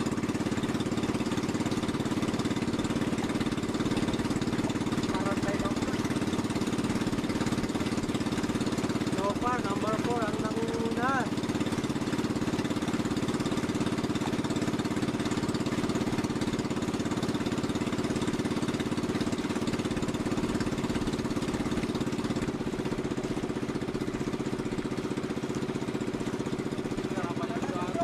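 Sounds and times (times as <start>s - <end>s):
motorboat engine chugging: 0.0s - 28.0s.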